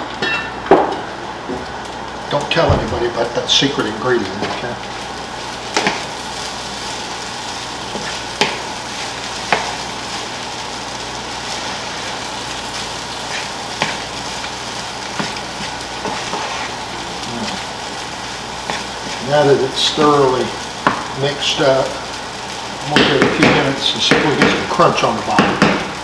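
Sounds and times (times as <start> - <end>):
fried rice sizzling in a skillet: 0.0 - 26.0.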